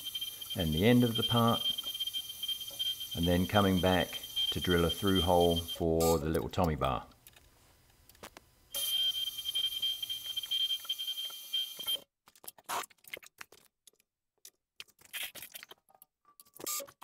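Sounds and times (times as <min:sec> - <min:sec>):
milling machine spindle whine: 0:00.0 - 0:05.8.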